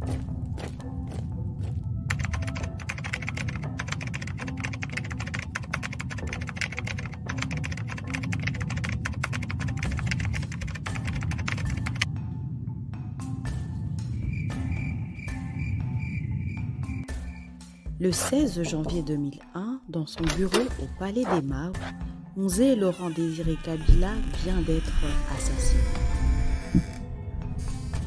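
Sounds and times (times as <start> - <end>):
low background music: 0.0 - 28.0
rapid keyboard typing: 2.1 - 12.1.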